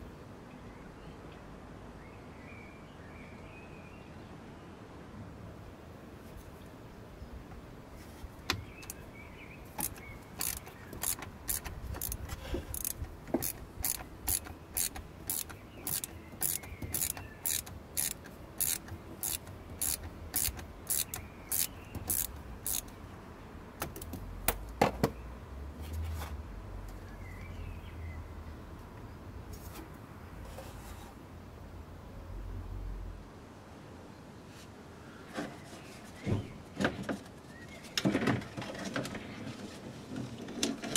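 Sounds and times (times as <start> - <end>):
socket ratchet clicking: 9.8 - 23.0.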